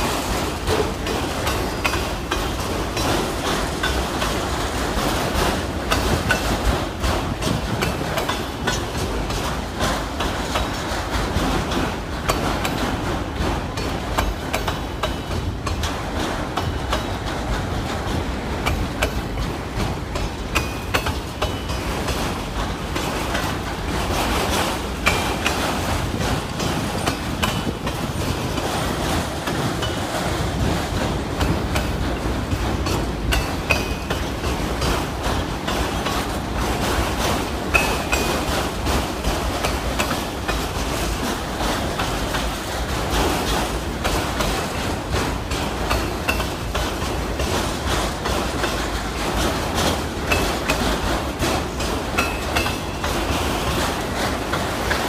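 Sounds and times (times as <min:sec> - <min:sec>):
freight train rumbling past: 0:00.0 - 0:55.0
wheels clattering over rail joints: 0:00.0 - 0:55.0.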